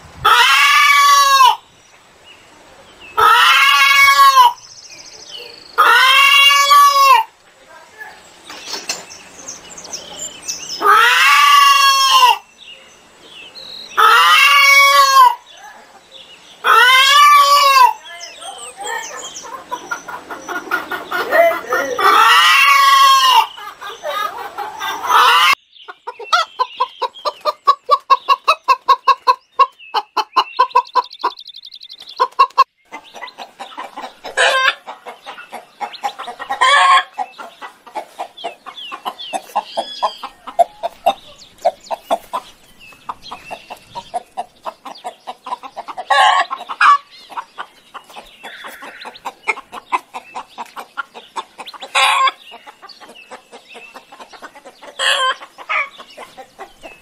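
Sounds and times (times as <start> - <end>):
clucking calls: 3.1 - 4.6, 13.9 - 57.0
fowl calling: 3.2 - 4.6, 5.8 - 7.4, 10.8 - 12.5, 13.9 - 15.9, 16.6 - 29.4, 32.2 - 42.5, 43.1 - 56.9.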